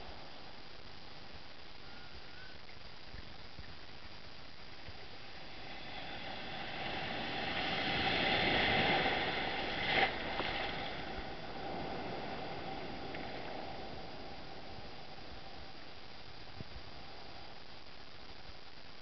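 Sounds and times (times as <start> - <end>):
sea surf washing in: 5.0 - 15.7.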